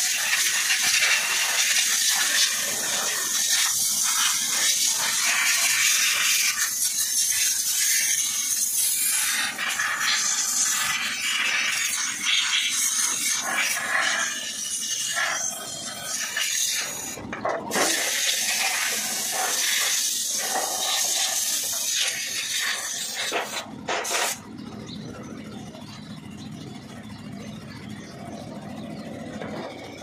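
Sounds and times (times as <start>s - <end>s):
spray gun hissing: 0.0s - 15.5s, 16.1s - 24.4s.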